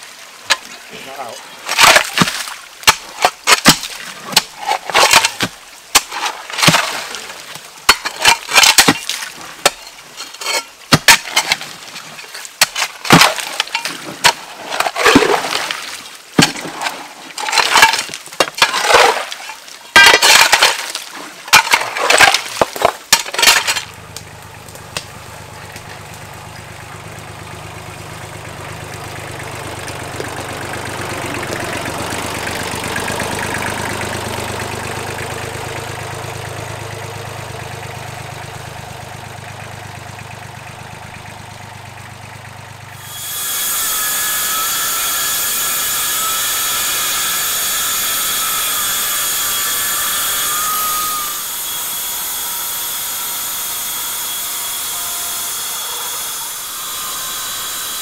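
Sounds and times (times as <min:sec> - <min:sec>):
hand tool chopping roots and soil: 0:01.7 - 0:15.8, 0:16.4 - 0:41.4, 0:43.0 - 0:58.0
tractor engine running: 0:21.5 - 0:58.0.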